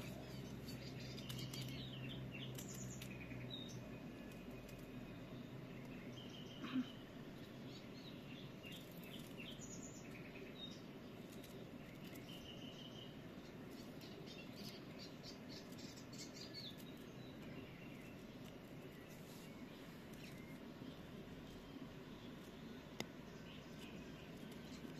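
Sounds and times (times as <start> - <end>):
small birds chirping: 0.0 - 24.9.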